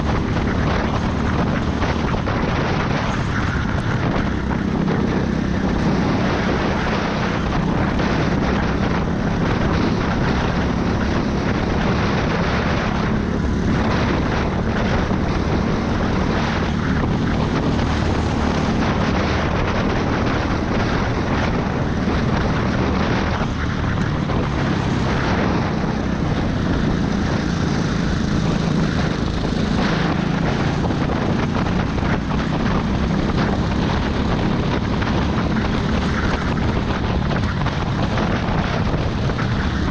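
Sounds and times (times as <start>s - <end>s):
dense rushing noise: 0.0s - 39.9s
go-kart engine drone: 0.0s - 39.9s.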